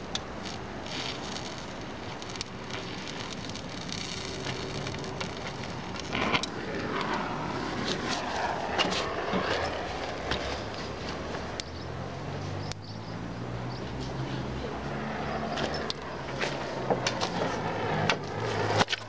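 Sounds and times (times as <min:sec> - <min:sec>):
weld crackles and pops: 0:00.0 - 0:11.8, 0:15.6 - 0:19.0
torch flame hissing: 0:00.0 - 0:12.4, 0:15.0 - 0:18.8.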